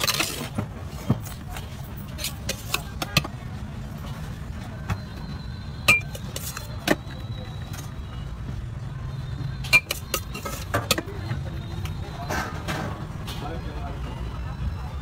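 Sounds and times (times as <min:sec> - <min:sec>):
low traffic rumble: 0:00.0 - 0:15.0
metal spoon clinking on steel: 0:05.9 - 0:06.7, 0:09.7 - 0:11.0.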